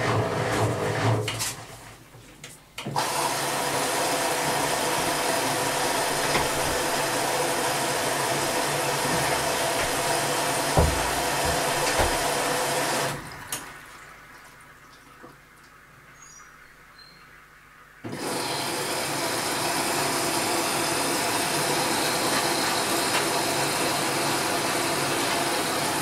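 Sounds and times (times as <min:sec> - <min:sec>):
water rushing into washing machine: 0:00.0 - 0:01.9, 0:02.8 - 0:16.1, 0:18.0 - 0:26.0
inlet valve opening and shutting: 0:04.4 - 0:13.2
low thumps: 0:08.4 - 0:12.5.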